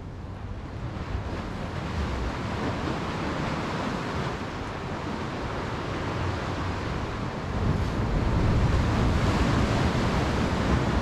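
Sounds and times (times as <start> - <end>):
wind rumbling on microphone: 0.0 - 11.0
sea waves washing on concrete: 0.6 - 11.0.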